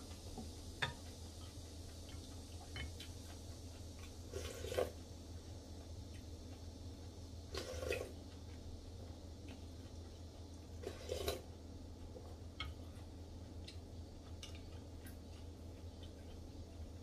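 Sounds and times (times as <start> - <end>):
person slurping soup: 4.3 - 5.0, 10.8 - 11.5
chewing: 5.8 - 17.0.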